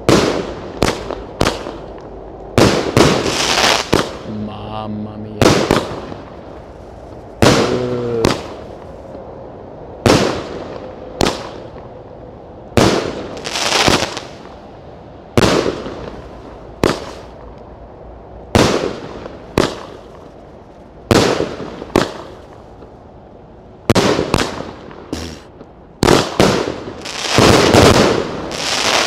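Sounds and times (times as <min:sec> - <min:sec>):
fireworks bangs: 0:02.6 - 0:04.3, 0:05.2 - 0:06.6, 0:07.4 - 0:08.7, 0:21.1 - 0:22.9, 0:23.9 - 0:29.0.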